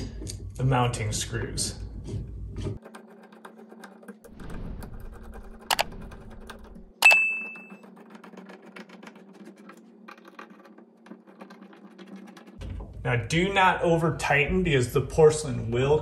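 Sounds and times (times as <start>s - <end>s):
short bright ding: 7.0s - 7.7s.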